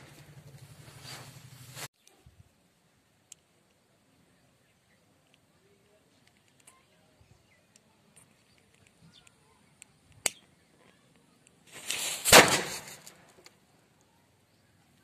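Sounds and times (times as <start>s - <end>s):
firecracker fuse hissing: 0.8s - 1.9s, 11.6s - 13.3s
firecracker bang: 11.7s - 13.3s.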